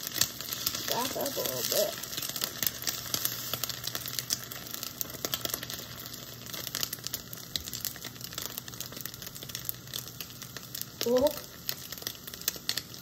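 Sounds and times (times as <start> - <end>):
eggs sizzling in a pan: 0.0 - 13.0
small crackles and pops: 0.0 - 13.0.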